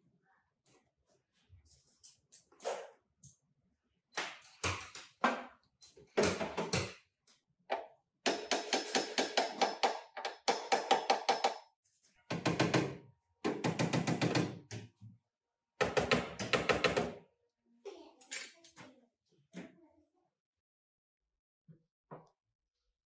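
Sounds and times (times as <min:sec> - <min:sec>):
hammer strikes on metal: 0:08.3 - 0:11.7.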